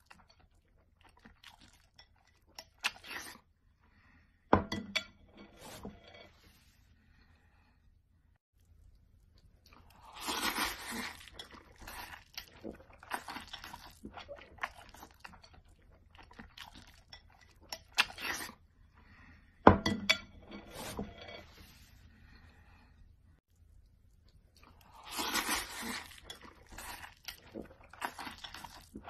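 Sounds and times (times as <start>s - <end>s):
noodles slurped and chewed: 0.0s - 3.6s, 8.7s - 18.7s, 23.6s - 29.0s.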